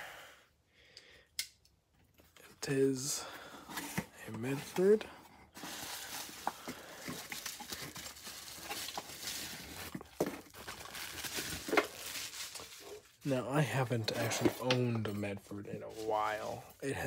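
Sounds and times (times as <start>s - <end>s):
bubble wrap crinkling: 5.5s - 13.2s.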